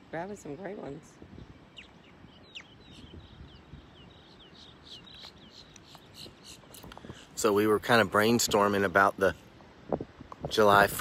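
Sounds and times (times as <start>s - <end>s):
wind and surf hiss: 0.0s - 11.0s
bird chirping: 1.4s - 7.4s.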